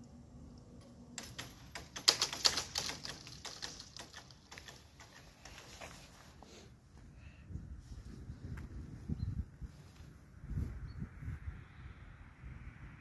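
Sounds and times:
barrier mesh skirts rattling: 0:01.2 - 0:06.2.

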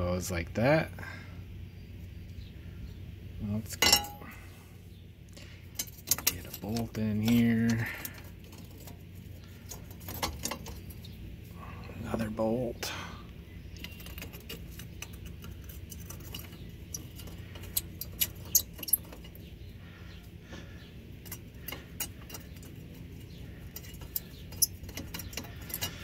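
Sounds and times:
steady low hum: 0:00.0 - 0:26.0
metallic clicks and clinks: 0:05.8 - 0:09.0, 0:21.2 - 0:26.0.

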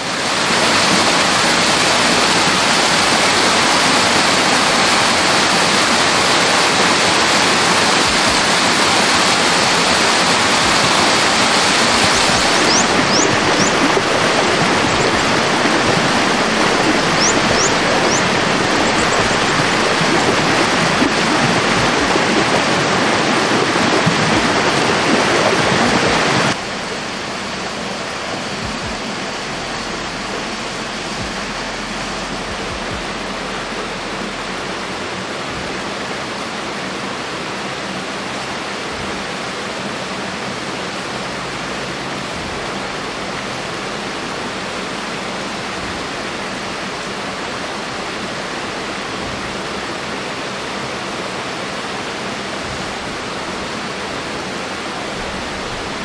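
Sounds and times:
rushing water: 0:00.0 - 0:56.0
faint high chirps: 0:12.1 - 0:19.9.

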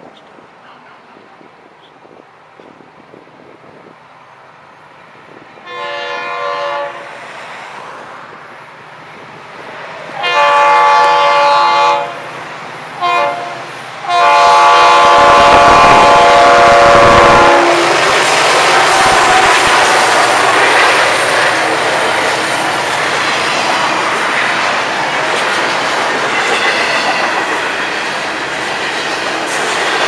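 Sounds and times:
locomotive air horn blasts: 0:05.6 - 0:07.1, 0:10.2 - 0:12.2, 0:13.0 - 0:18.0.

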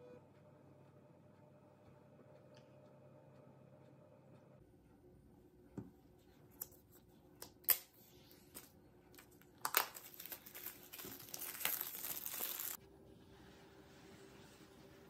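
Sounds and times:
plastic wrap crinkling: 0:07.6 - 0:12.8
plastic shrink-wrap snapping: 0:08.6 - 0:12.8.

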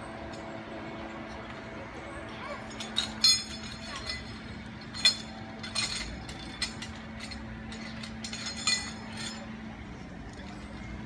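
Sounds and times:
metal clip clinking on steel cable: 0:02.4 - 0:11.0.

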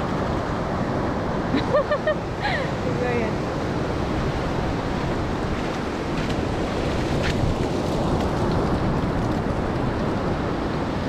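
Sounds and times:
ocean surf breaking on beach: 0:00.0 - 0:11.0
wind on microphone: 0:00.0 - 0:11.0.

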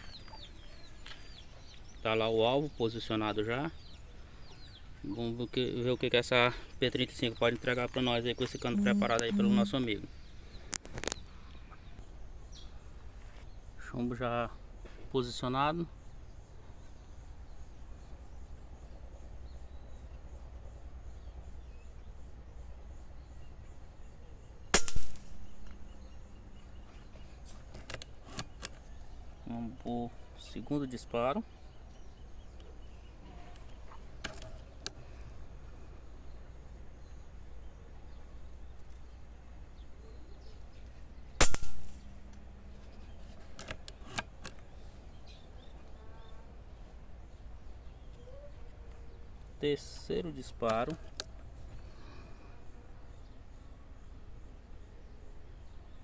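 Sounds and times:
air rifle shot crack: 0:24.7 - 0:25.4, 0:41.4 - 0:42.0.

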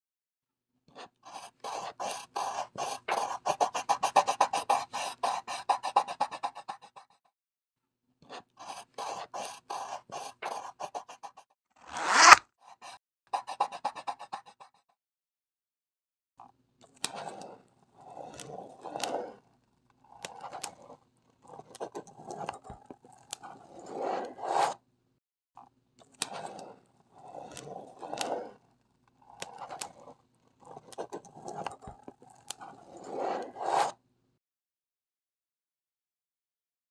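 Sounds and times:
pen scraping across paper: 0:01.0 - 0:07.2, 0:08.6 - 0:14.8, 0:17.1 - 0:19.4, 0:20.1 - 0:24.8, 0:26.2 - 0:34.0.

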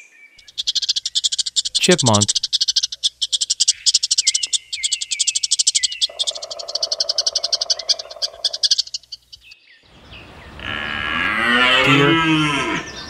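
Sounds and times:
chipmunk chipping: 0:00.4 - 0:09.6.

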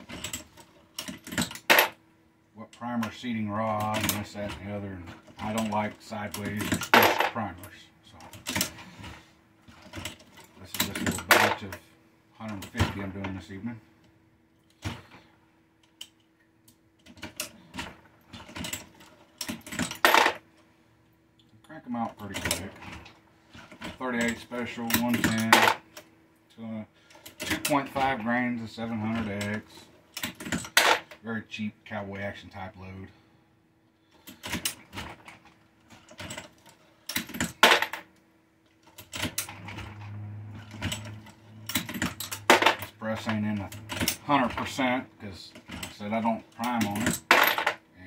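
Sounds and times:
reloading press clanks and clicks: 0:02.7 - 0:08.9, 0:22.1 - 0:26.1, 0:27.1 - 0:31.2, 0:38.8 - 0:44.8.

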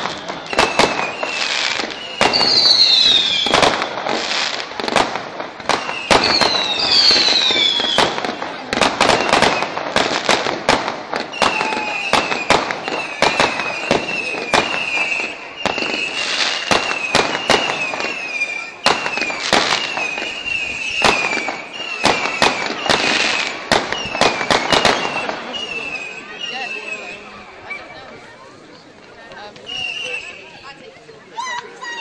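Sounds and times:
fireworks bangs and crackling: 0:00.0 - 0:32.0
wavering whistle: 0:29.6 - 0:30.6.

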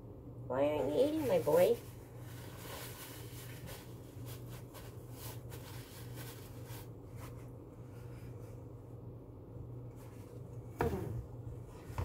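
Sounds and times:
steady low hum: 0:00.0 - 0:12.0
paper towel crinkling: 0:00.8 - 0:09.0.

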